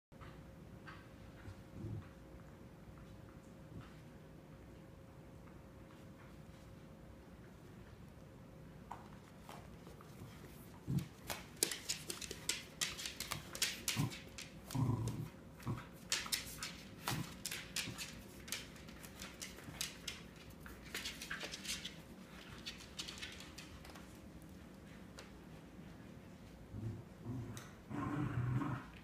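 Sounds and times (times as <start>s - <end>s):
dog claws on hardwood floor: 8.9s - 24.5s
dogs growling: 13.9s - 16.0s, 26.7s - 29.0s.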